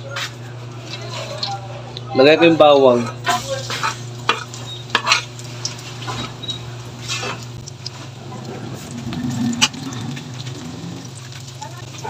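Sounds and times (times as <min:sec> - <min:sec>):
garlic frying in oil: 0:00.4 - 0:12.0
low hum: 0:04.0 - 0:12.0.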